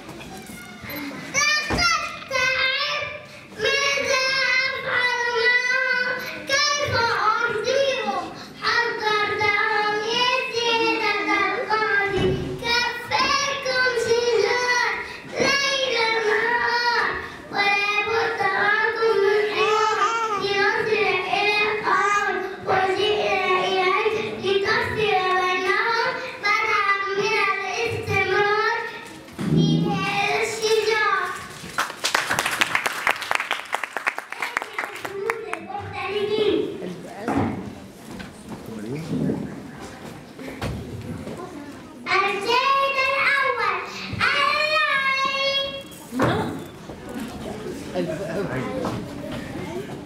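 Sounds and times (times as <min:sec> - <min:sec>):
breaths: 0:03.2 - 0:03.6, 0:08.2 - 0:08.7, 0:15.0 - 0:15.3, 0:17.2 - 0:17.5, 0:26.1 - 0:26.4.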